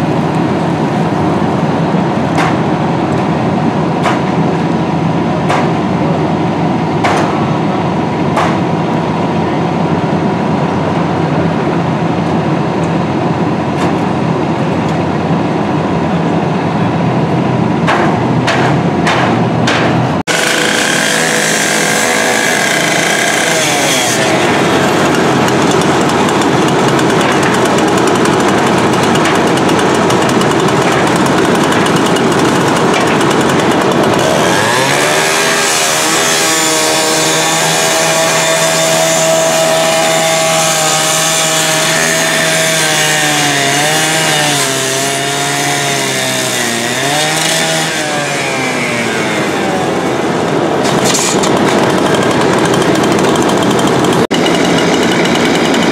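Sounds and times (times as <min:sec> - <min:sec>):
rescue saw cutting sheet metal: 0:19.7 - 0:55.9.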